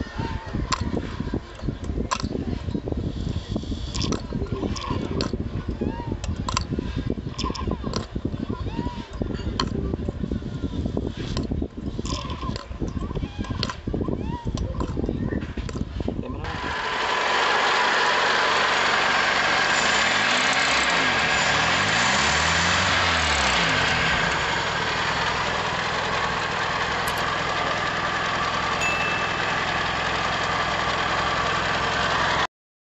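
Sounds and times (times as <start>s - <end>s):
car engine idling: 16.6s - 32.5s.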